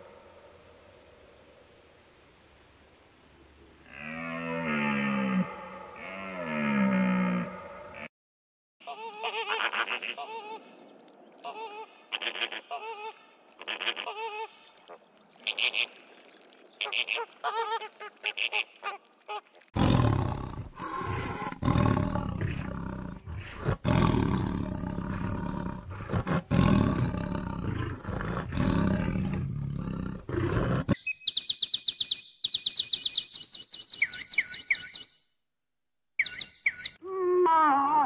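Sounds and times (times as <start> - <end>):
large animal roaring and growling: 19.8 - 31.0
high-pitched chirps and trills: 36.2 - 37.0.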